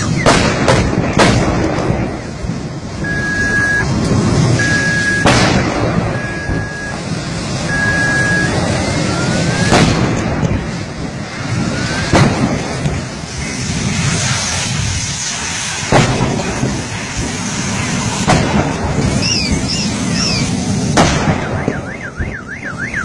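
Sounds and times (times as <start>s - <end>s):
flames roaring: 0.0s - 23.0s
gas cylinders bursting bangs: 0.0s - 23.0s
rising whistle: 3.0s - 3.9s, 4.6s - 5.3s, 6.1s - 9.8s, 11.5s - 12.1s, 19.2s - 20.6s, 21.4s - 23.0s.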